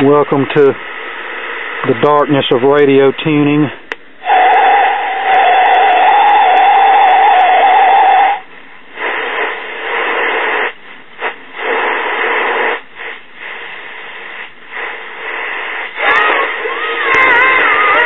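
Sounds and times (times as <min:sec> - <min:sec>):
radio hiss and static: 0:00.0 - 0:18.0
radio wavering whistle: 0:04.2 - 0:08.5, 0:15.8 - 0:18.0.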